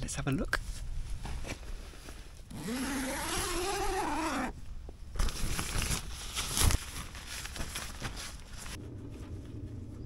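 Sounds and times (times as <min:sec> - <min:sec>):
tent zip pulled open: 0:02.5 - 0:04.6
rustling: 0:03.3 - 0:10.0.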